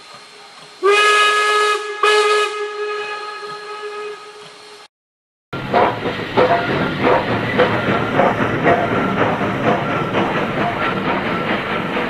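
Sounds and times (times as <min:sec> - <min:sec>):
model train running on track: 0:00.0 - 0:04.8, 0:05.6 - 0:12.0.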